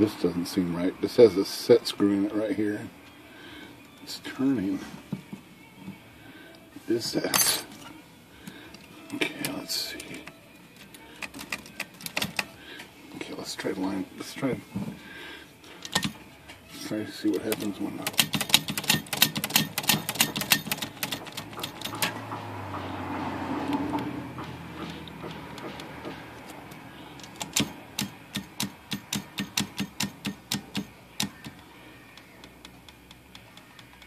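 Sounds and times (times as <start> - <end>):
typewriter carriage clicking: 17.4 - 22.2, 27.2 - 31.5.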